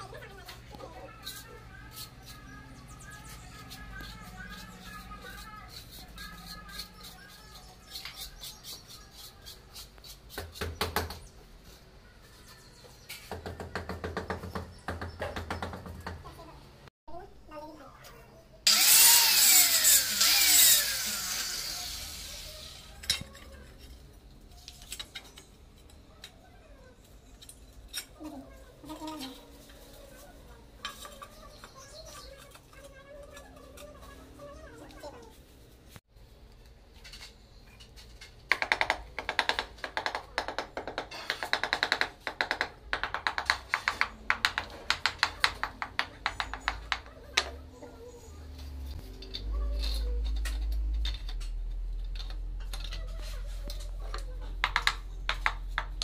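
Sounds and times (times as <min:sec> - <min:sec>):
angle grinder cutting tile: 0:18.7 - 0:22.9
hammer handle tapping tile: 0:38.5 - 0:47.5.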